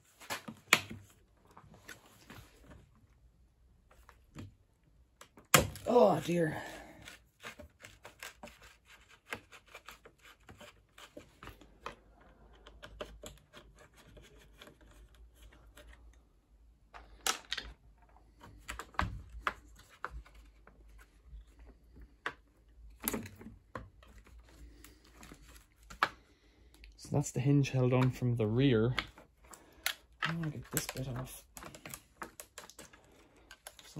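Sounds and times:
plastic parts clicking and rattling: 7.0s - 16.3s, 16.9s - 26.9s, 27.7s - 33.9s.

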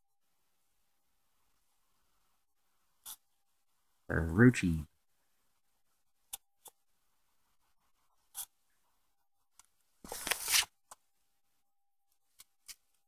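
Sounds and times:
paper rustling and scraping: 10.0s - 10.8s.

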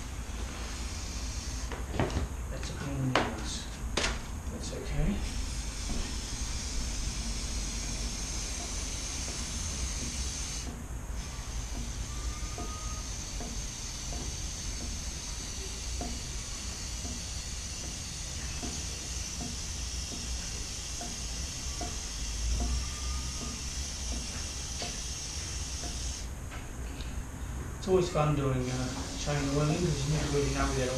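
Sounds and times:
aerosol spray hissing: 5.2s - 26.3s, 28.7s - 30.9s.

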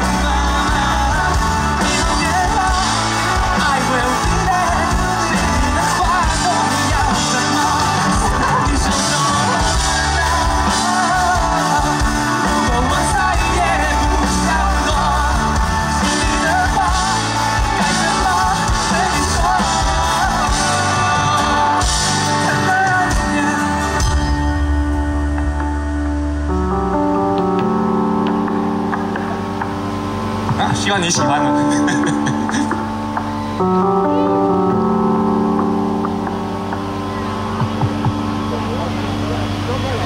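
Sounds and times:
man singing: 0.0s - 24.3s
live rock band playing: 0.0s - 40.0s.

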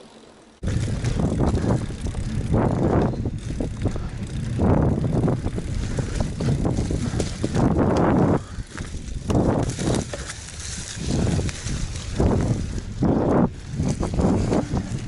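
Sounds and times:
bike rattling over bumps: 0.1s - 15.0s
tyres crunching on sand and leaves: 8.6s - 13.0s.

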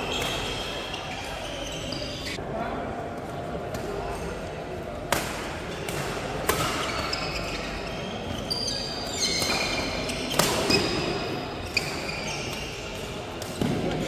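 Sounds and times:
shoes squeaking on court floor: 0.0s - 2.4s, 6.7s - 14.0s.

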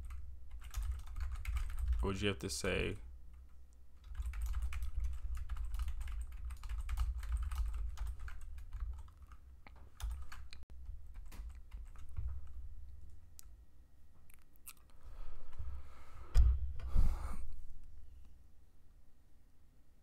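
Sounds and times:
keyboard typing: 0.0s - 2.1s, 4.0s - 12.6s.

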